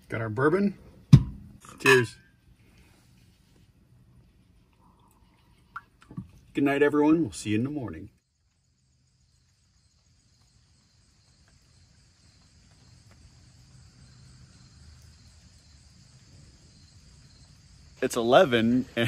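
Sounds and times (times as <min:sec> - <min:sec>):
high chorus of insects: 0:08.2 - 0:19.0.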